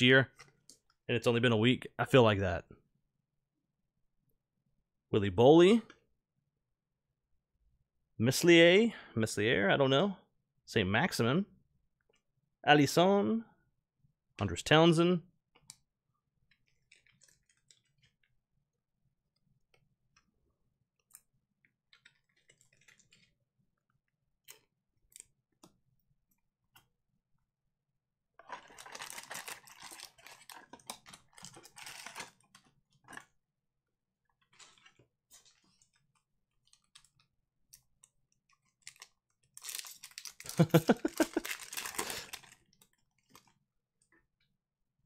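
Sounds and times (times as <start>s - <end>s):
wrapper tearing and crinkling: 28.4s - 32.4s, 38.8s - 43.5s.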